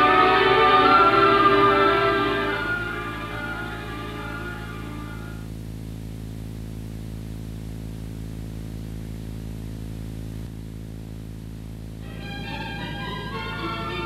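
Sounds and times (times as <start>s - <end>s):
music: 0.0s - 5.5s, 12.0s - 14.0s
electrical hum with hiss: 0.0s - 14.0s.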